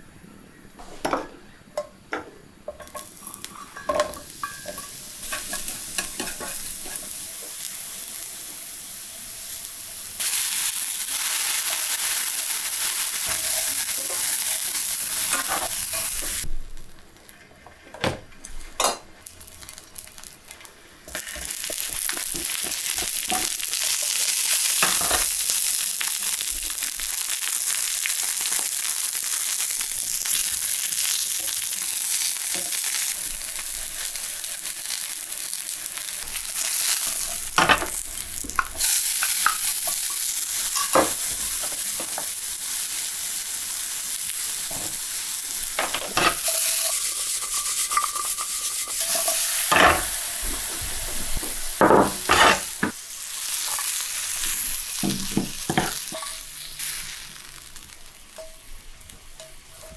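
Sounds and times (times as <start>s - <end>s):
vegetables sizzling in hot oil: 2.7s - 17.4s, 18.6s - 59.9s.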